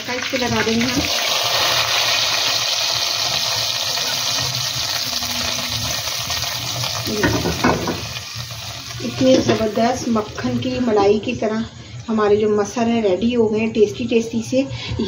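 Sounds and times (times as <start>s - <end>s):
hot oil sizzling: 0.0s - 11.2s.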